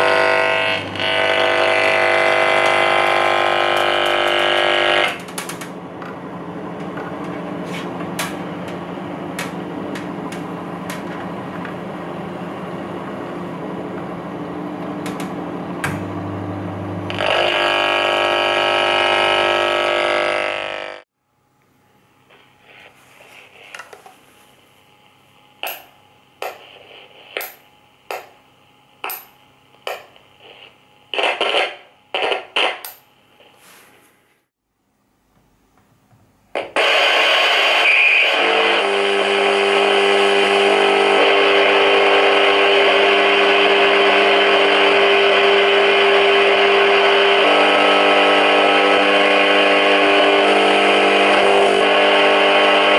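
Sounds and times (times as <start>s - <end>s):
radio static clicks and crackles: 0.0s - 5.7s, 22.2s - 24.2s, 25.6s - 33.6s, 36.5s - 39.4s
radio interference hum: 0.0s - 21.1s, 21.9s - 34.5s, 36.5s - 52.9s.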